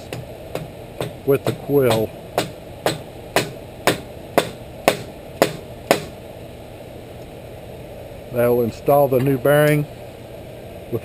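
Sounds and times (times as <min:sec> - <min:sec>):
hammer tapping on metal pipe: 0:00.0 - 0:06.1.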